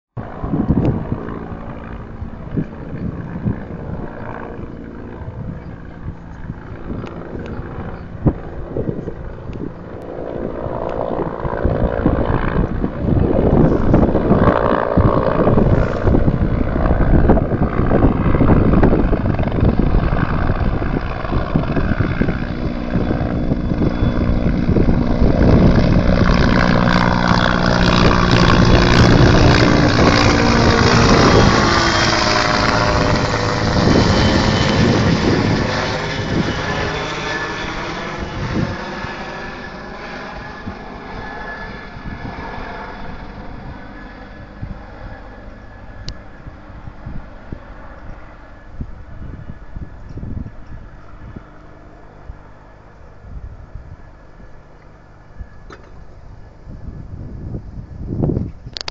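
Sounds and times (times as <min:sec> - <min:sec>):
helicopter passing low overhead: 0:00.2 - 0:58.9.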